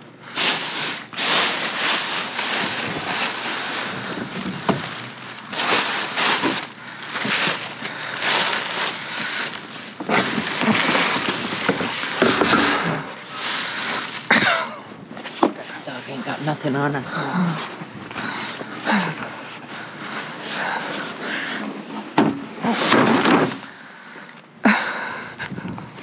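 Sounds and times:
plastic bags rustling: 0.0s - 15.2s.

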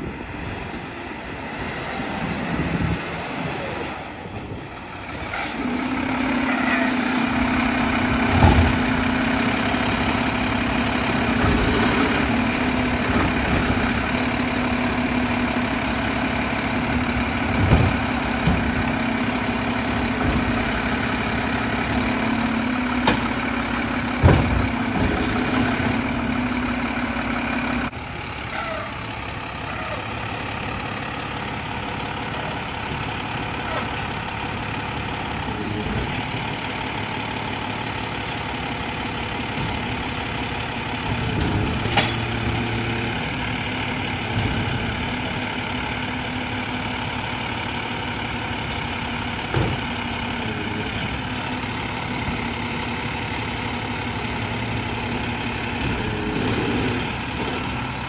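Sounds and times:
garbage truck engine running: 0.0s - 58.0s.

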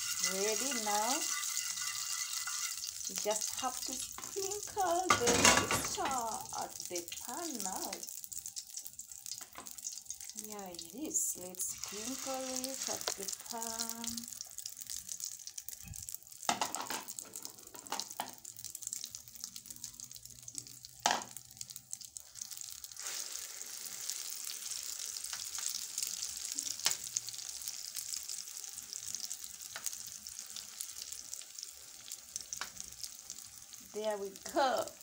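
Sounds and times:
metal spoon scraping pan: 0.0s - 6.2s
egg sizzling in oil: 0.0s - 35.0s.

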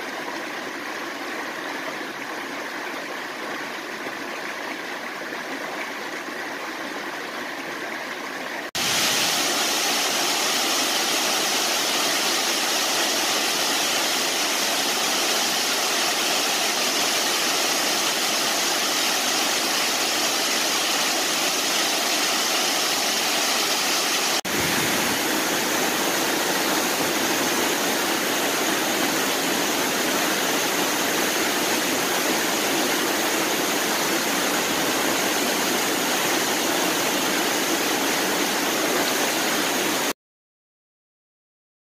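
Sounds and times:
creek rushing over boulders: 0.0s - 40.1s
waterfall: 0.0s - 40.2s
waterfall plunging into pool: 8.7s - 40.1s.

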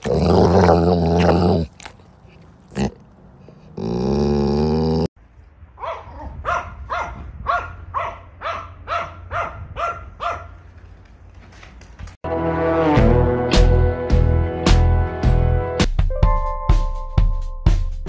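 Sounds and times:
small dog barking: 5.8s - 10.6s.

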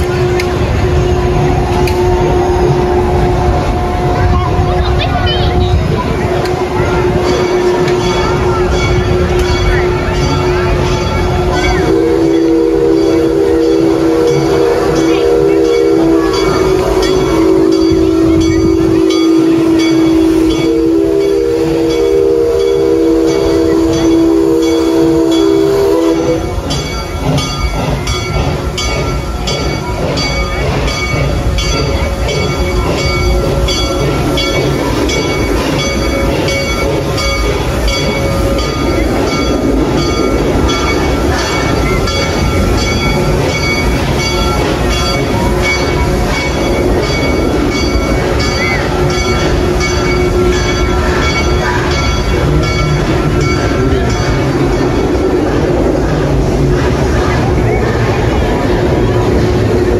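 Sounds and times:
ride machinery rumbling: 0.0s - 59.9s
horn-like chord: 6.4s - 26.5s.

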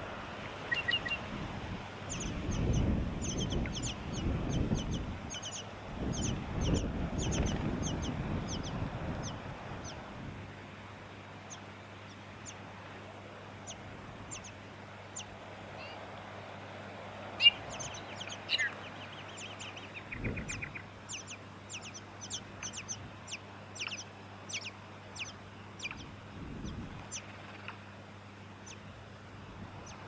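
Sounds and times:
wind rumbling on microphone: 0.0s - 10.6s, 17.4s - 21.8s, 25.8s - 27.3s, 28.9s - 30.0s.

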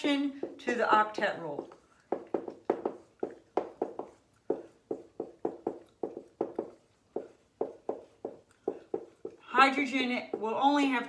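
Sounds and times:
marker squeaking on whiteboard: 0.0s - 10.6s.

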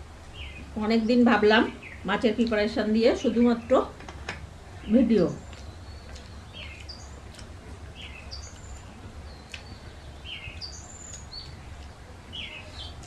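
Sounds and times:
small bird chirping: 0.4s - 2.1s, 4.7s - 13.0s.

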